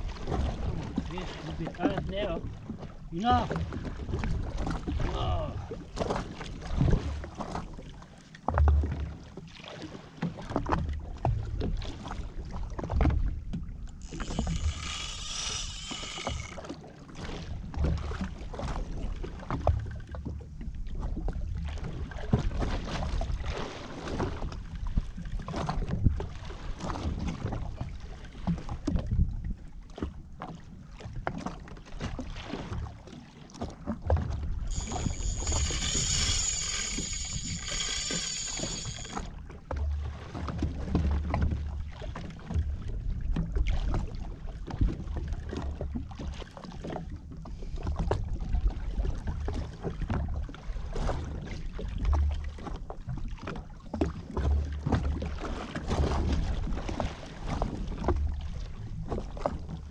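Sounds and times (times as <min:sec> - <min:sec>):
water lapping against hull: 0:00.0 - 0:59.9
fishing reel whirring: 0:14.0 - 0:16.7, 0:34.7 - 0:39.3
wind on microphone: 0:34.7 - 0:39.2.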